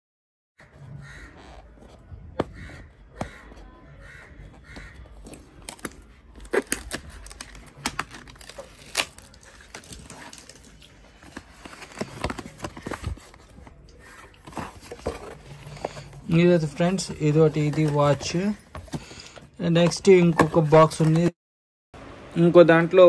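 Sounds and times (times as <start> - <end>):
cardboard box handling: 4.8 - 21.3
paper tear strip ripping: 6.5 - 10.8.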